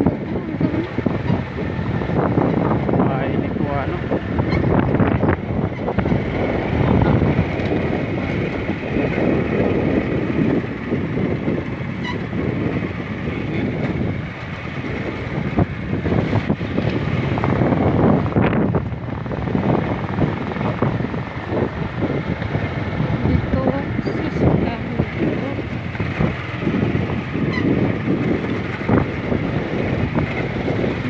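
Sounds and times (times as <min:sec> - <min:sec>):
road rumble: 0:00.0 - 0:31.0
small motorcycle engine running: 0:00.0 - 0:31.0
wind noise: 0:00.0 - 0:31.0.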